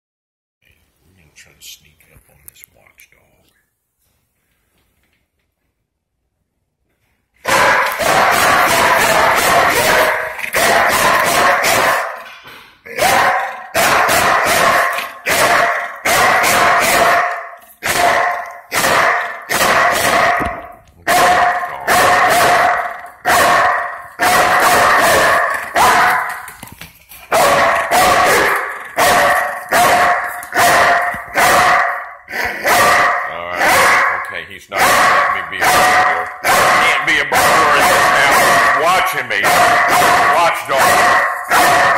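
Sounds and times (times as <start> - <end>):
dog barking loudly: 7.4 - 12.3, 12.9 - 26.6, 27.3 - 41.9.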